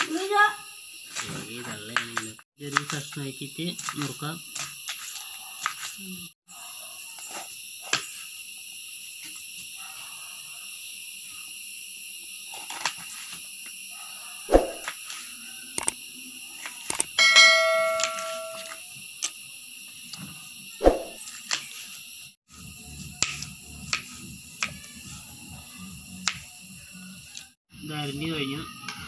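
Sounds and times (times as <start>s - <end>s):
bright ringing tone: 17.2s - 18.8s.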